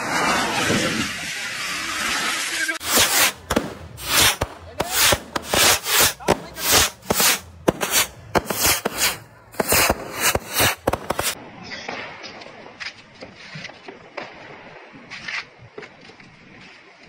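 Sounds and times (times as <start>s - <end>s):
firework tube whooshing shots: 2.8s - 11.4s
sharp firework cracks: 2.8s - 11.4s.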